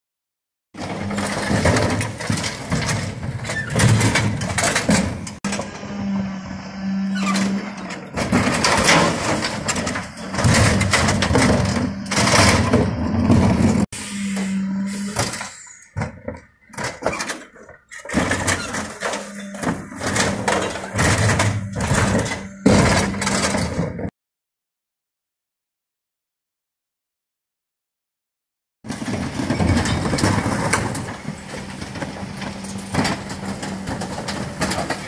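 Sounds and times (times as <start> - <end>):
plastic bins and lifter clattering: 0.8 - 5.8, 7.2 - 24.1, 28.9 - 35.0
truck engine and hydraulics humming: 0.8 - 24.1, 28.9 - 35.0.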